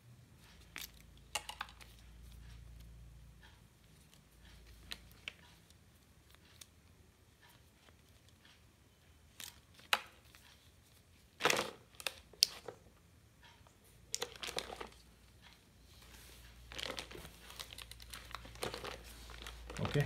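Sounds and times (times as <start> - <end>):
plastic packaging crinkling: 14.2 - 15.0, 16.7 - 20.0.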